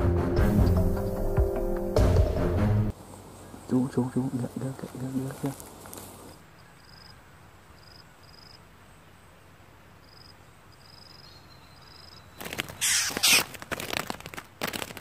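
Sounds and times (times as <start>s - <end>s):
insect chirps: 5.0s - 15.0s
harsh noise bursts: 12.8s - 13.5s.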